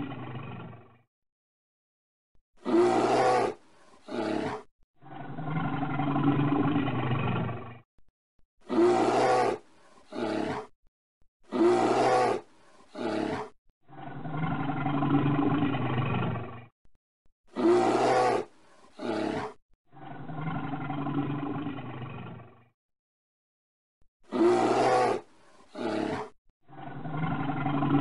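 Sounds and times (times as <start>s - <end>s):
bear roaring and growling: 0.0s - 1.0s, 2.6s - 7.8s, 8.6s - 10.7s, 11.4s - 16.7s, 17.5s - 22.7s, 24.3s - 28.0s.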